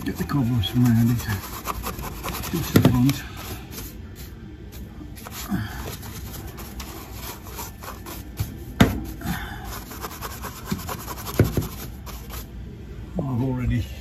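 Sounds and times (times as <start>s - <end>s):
brush scrubbing plastic and wood: 0.0s - 3.2s, 5.3s - 8.6s, 9.7s - 12.5s.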